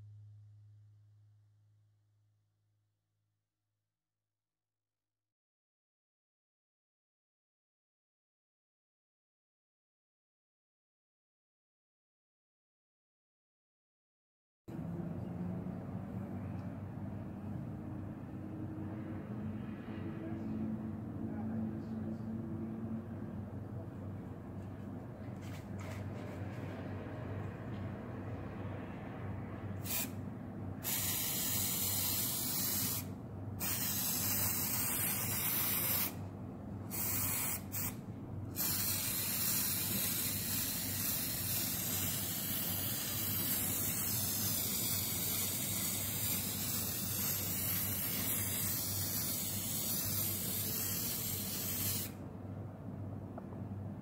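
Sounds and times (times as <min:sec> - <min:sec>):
aerosol can spraying: 0:29.8 - 0:30.2, 0:30.8 - 0:36.2, 0:36.9 - 0:38.0, 0:38.6 - 0:52.1.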